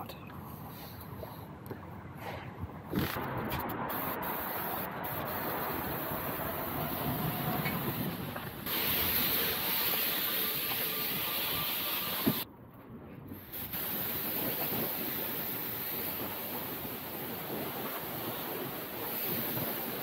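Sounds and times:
pressure washer spraying water: 0:03.6 - 0:12.4, 0:13.5 - 0:20.0.

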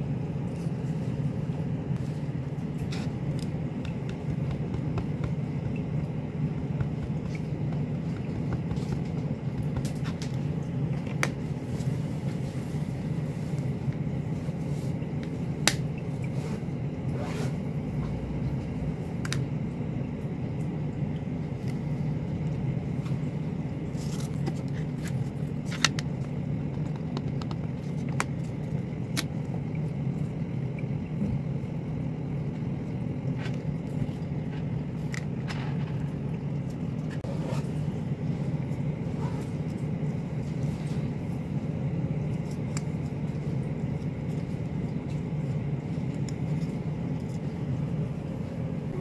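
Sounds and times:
low background hum: 0:00.0 - 0:49.0.

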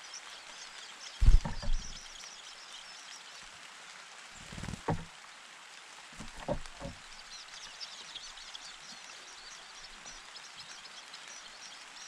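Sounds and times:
nestlings chirping: 0:01.1 - 0:02.3
soft thumps: 0:01.2 - 0:02.0, 0:04.7 - 0:05.1, 0:06.2 - 0:07.0.

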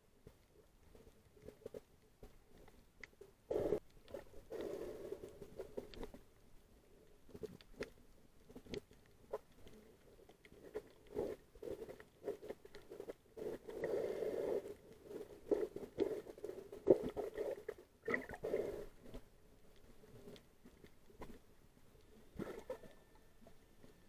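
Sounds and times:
muffled underwater swishes and bubbling: 0:06.8 - 0:24.0.

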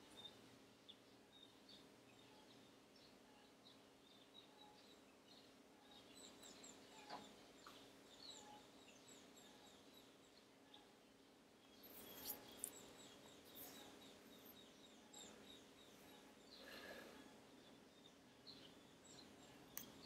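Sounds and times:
faint high-pitched chirps: 0:00.0 - 0:20.0.

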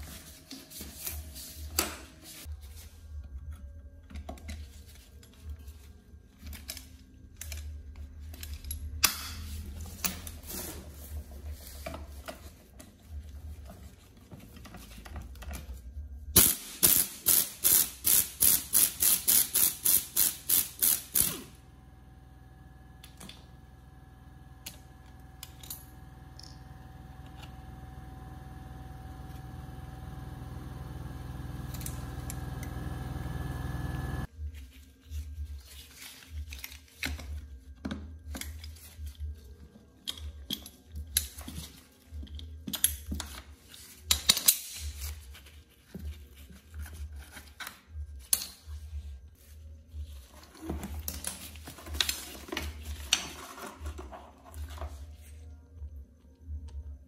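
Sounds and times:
ratchet clicking: 0:16.4 - 0:21.5
steady hum: 0:19.8 - 0:34.3.

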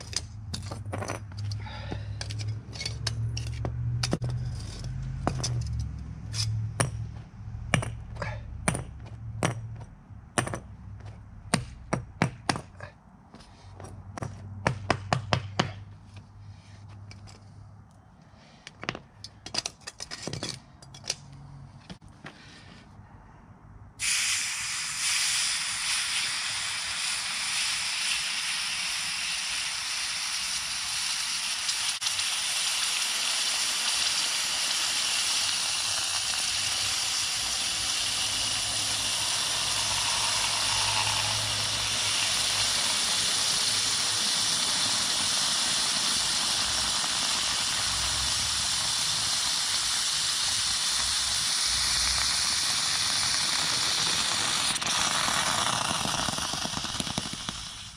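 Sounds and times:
hot metal sizzling in water: 0:24.0 - 0:57.9.

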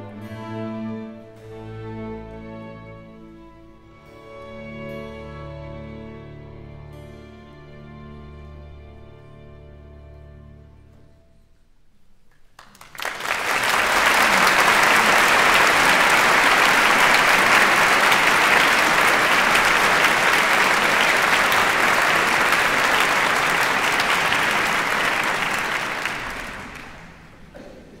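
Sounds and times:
audience applauding: 0:12.5 - 0:27.7.

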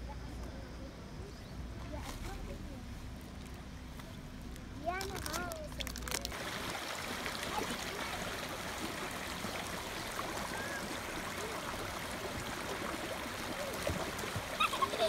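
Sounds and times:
stream babbling over rocks: 0:05.7 - 0:15.0.

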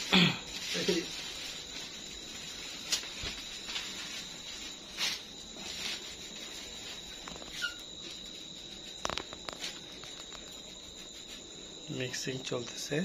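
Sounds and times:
high-pitched whine: 0:00.0 - 0:13.0
short high squeak: 0:07.4 - 0:07.9.

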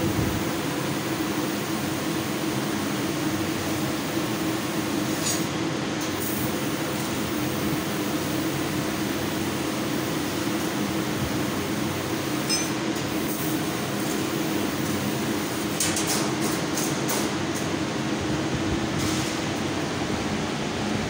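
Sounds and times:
laser cutter hiss: 0:00.0 - 0:15.8.

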